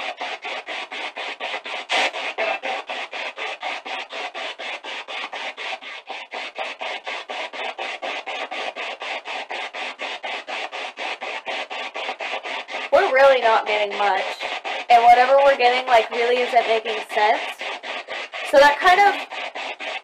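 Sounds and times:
choppy radio static bursts: 1.9s - 3.0s.

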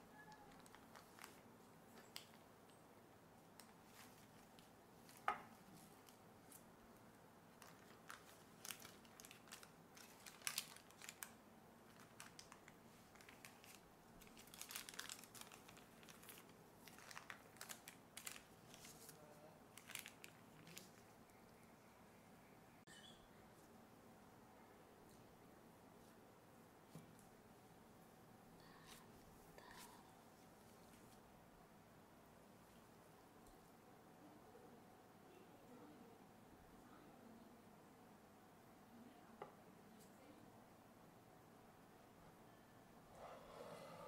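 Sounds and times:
baking paper crinkling: 0.3s - 2.4s, 7.5s - 21.1s.

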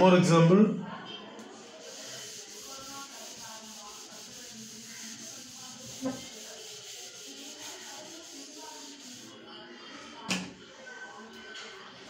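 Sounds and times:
duster wiping a whiteboard: 1.5s - 9.4s.

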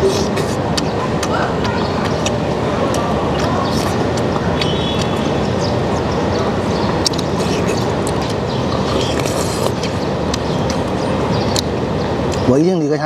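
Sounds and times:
person slurping: 0.0s - 0.6s, 7.0s - 10.0s
rumbling background noise: 0.0s - 13.0s.

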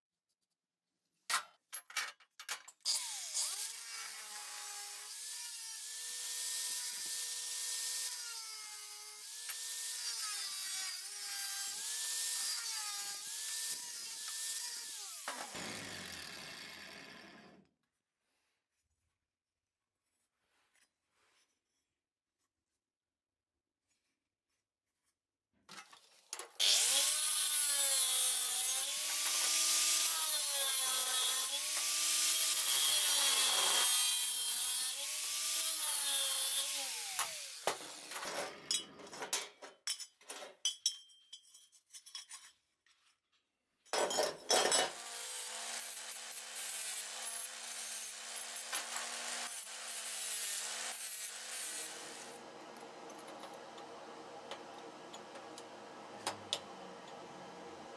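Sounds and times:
angle grinder cutting steel: 2.9s - 17.6s, 26.6s - 38.9s, 44.5s - 53.3s.

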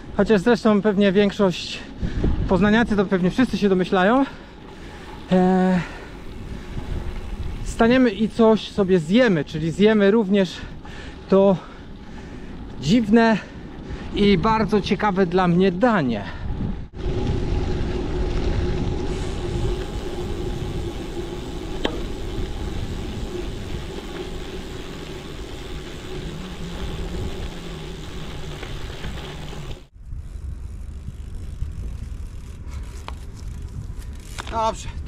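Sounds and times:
bike tyre hum and rumble: 0.0s - 35.0s
wind on microphone: 1.9s - 3.1s, 5.9s - 8.2s, 16.2s - 35.0s.

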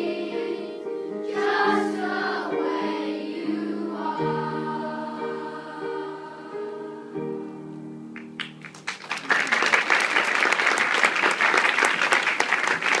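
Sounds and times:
choir holding a note: 0.0s - 7.4s
audience applause: 8.4s - 13.0s.

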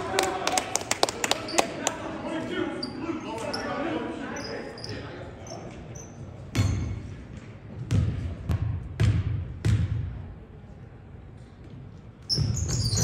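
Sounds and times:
basketball bouncing on hardwood floor: 7.8s - 10.0s.

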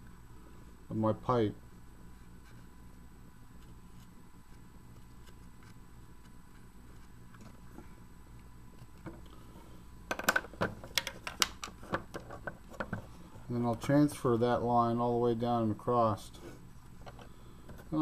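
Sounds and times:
plastic clicks and knocks: 10.1s - 13.0s.

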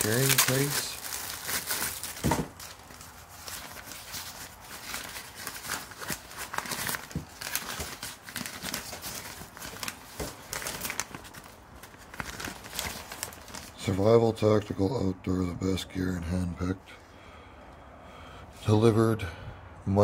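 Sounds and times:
fabric bag rustling: 0.0s - 13.9s.

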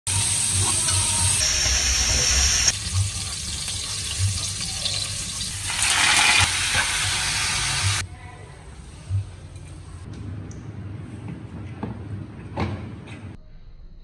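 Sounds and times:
running water hiss: 0.1s - 8.0s.

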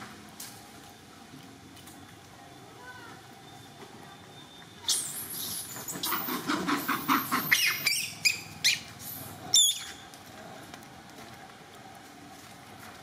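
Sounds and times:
monkeys screeching: 4.8s - 10.0s.

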